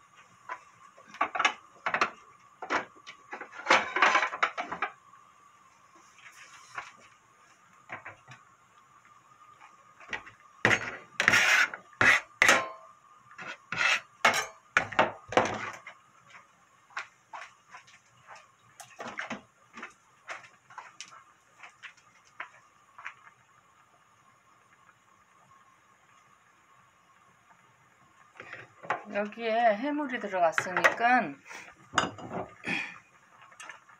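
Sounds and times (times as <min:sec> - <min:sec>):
metal spoon and dishes clattering: 0:13.8 - 0:15.6, 0:31.9 - 0:32.6.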